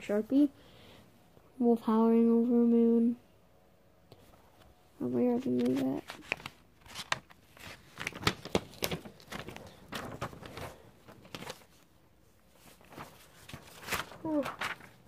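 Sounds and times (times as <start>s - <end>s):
paper pages rustling: 4.1s - 15.0s.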